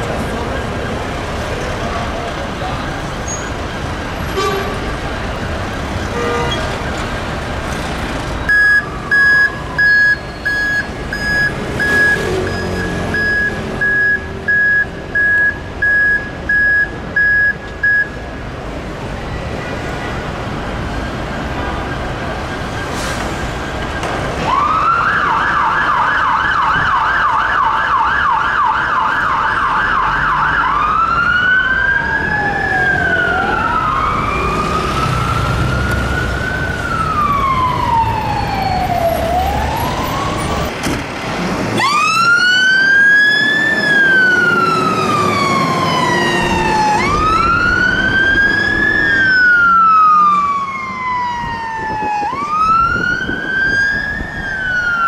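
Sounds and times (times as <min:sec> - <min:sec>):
fire engine siren wail: 0:08.4 - 0:18.0, 0:21.2 - 0:40.8, 0:41.7 - 0:55.0
fire engine siren yelp: 0:08.5 - 0:18.2, 0:23.8 - 0:40.7, 0:41.7 - 0:55.0.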